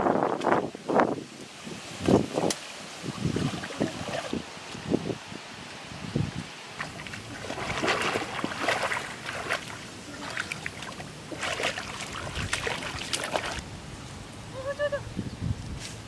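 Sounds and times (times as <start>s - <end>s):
water sloshing and splashing: 2.0s - 4.8s, 6.7s - 13.6s.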